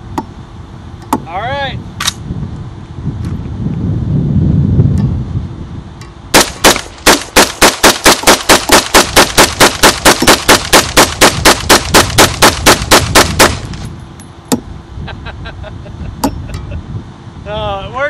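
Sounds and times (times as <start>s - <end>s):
rifle rapid gunshots: 6.3s - 13.7s.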